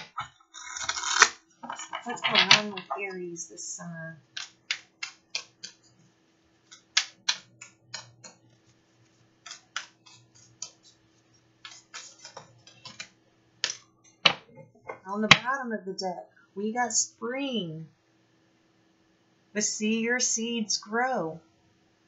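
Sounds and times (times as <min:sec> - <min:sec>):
cards being shuffled: 0:09.4 - 0:11.0, 0:11.6 - 0:14.4.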